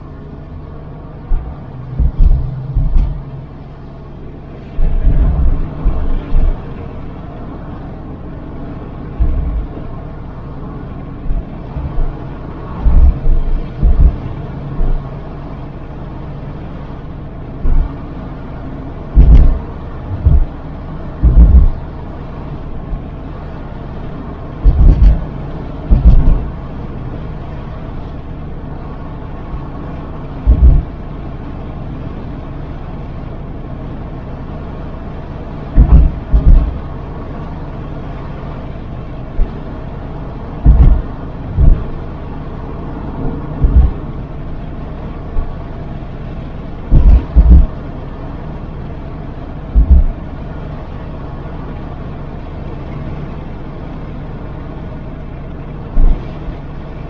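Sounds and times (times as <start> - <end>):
road and engine hum: 0.0 - 57.0
loud low thumps: 1.3 - 3.3, 4.8 - 6.7, 9.2 - 9.7, 12.8 - 15.0, 19.2 - 20.6, 21.2 - 21.8, 24.6 - 25.3, 25.9 - 26.5, 30.4 - 30.9, 35.8 - 36.8, 40.6 - 41.9, 43.6 - 44.0, 46.9 - 47.7, 49.8 - 50.1.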